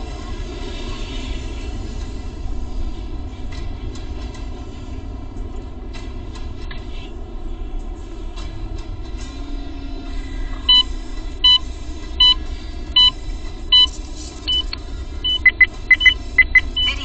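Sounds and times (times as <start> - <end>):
car driving road noise: 0.0 - 17.0
electronic beeps: 10.7 - 11.6, 12.2 - 12.4, 13.0 - 13.9, 14.5 - 17.0.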